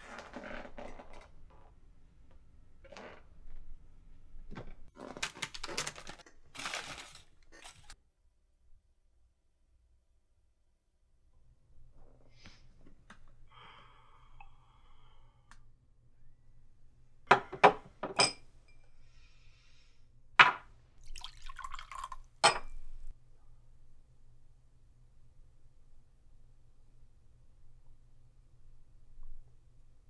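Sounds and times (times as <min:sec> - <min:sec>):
liquor trickling into glass: 0:21.0 - 0:22.8.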